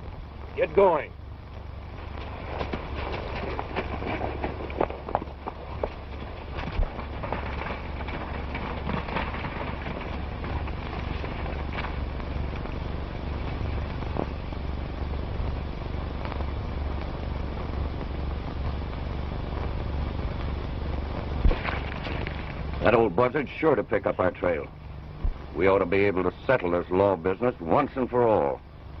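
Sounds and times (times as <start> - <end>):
film hiss and crackle: 0.0 - 29.0
low hum: 0.0 - 29.0.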